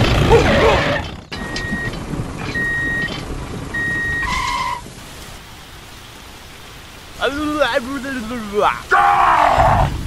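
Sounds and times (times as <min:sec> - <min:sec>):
vehicle reversing beeper: 0:01.3 - 0:04.6
soft steady hiss: 0:04.9 - 0:10.0.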